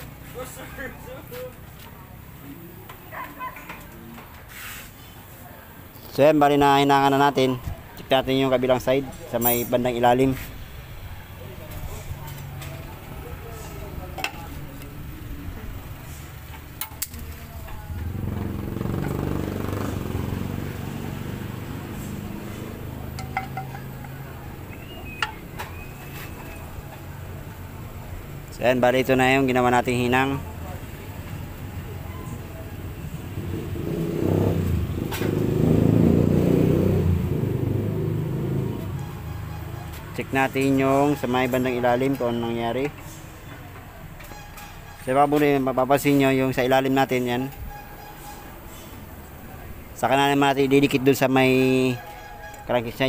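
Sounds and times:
metallic clinks: 0:09.4 - 0:10.0, 0:23.2 - 0:24.2
vehicle engine running: 0:12.3 - 0:28.3.

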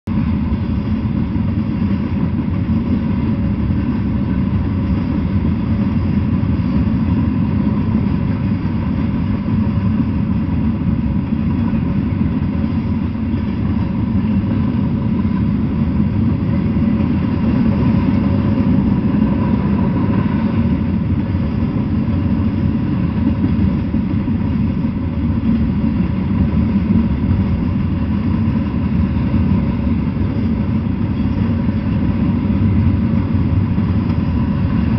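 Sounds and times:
freight train wheels rumbling: 0:00.0 - 0:34.9.

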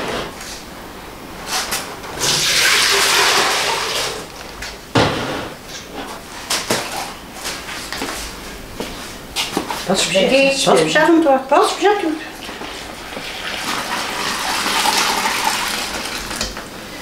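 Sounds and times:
water running: 0:02.2 - 0:04.3, 0:11.7 - 0:16.6
hands mixing dough: 0:09.4 - 0:16.7.

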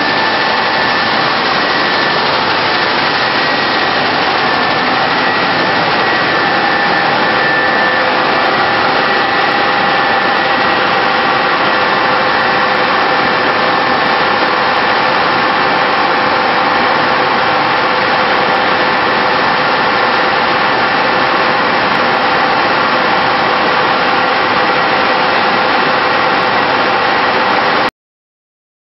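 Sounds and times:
drone of motors and fans: 0:00.0 - 0:27.9.

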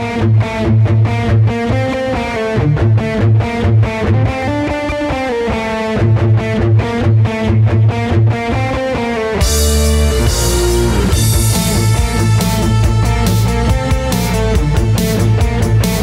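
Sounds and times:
electric guitar riff: 0:00.0 - 0:16.0
low pulse: 0:09.4 - 0:16.0.

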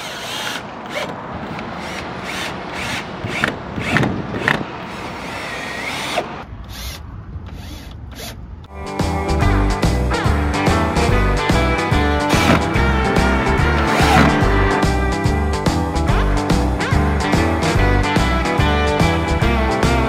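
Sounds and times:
cordless drill driving screws: 0:00.0 - 0:08.4
music: 0:08.7 - 0:20.0.

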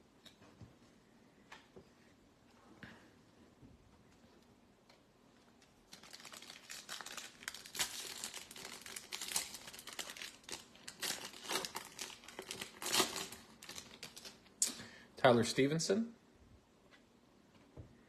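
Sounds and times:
foil wrapper crinkling: 0:05.8 - 0:14.4.

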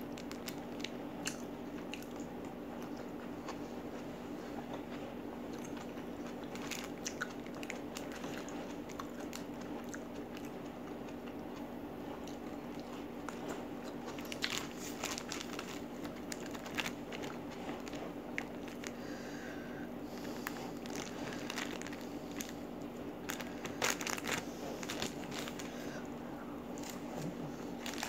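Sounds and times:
chewing raw vegetables: 0:00.0 - 0:19.3
steady low hum: 0:00.0 - 0:28.0.

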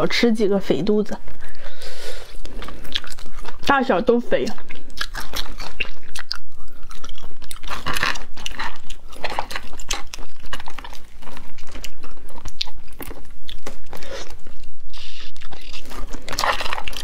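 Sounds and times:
chewing and mouth sounds: 0:01.2 - 0:17.0
shells cracking and snapping: 0:04.6 - 0:14.0.

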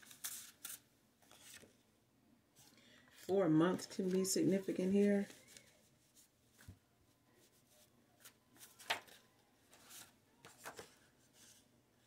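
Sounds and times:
paper cards rustling and tapping: 0:08.2 - 0:11.6.

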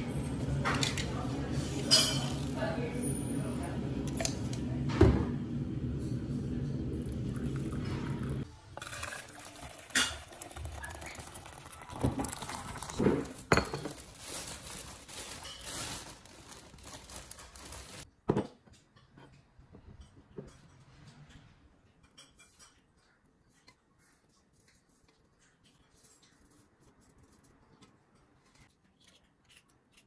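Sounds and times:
kitchenware clinking and knocking: 0:01.8 - 0:02.6, 0:07.7 - 0:14.1
water pouring into a mug: 0:07.0 - 0:13.5.

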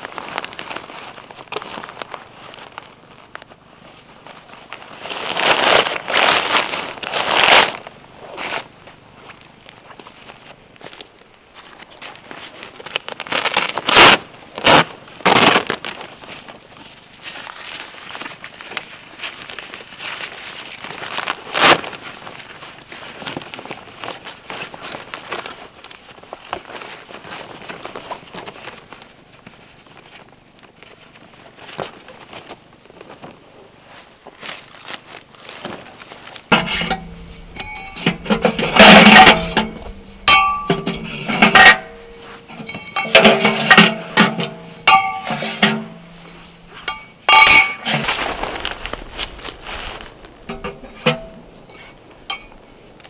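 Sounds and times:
canvas tent fabric rustling: 0:00.0 - 0:53.0
metal stove pipes clanking: 0:36.5 - 0:48.1, 0:50.5 - 0:52.6
steady low hum: 0:36.5 - 0:53.0.

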